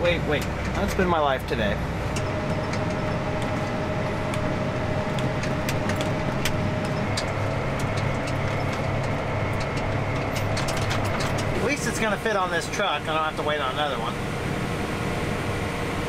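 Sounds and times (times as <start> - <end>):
tractor engine drone: 0.0 - 16.0
light clicks and rattles: 5.1 - 12.1.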